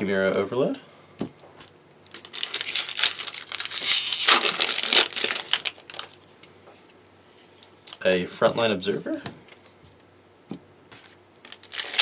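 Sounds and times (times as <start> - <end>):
foil wrapper crinkling and tearing: 2.1 - 6.2, 11.4 - 12.0.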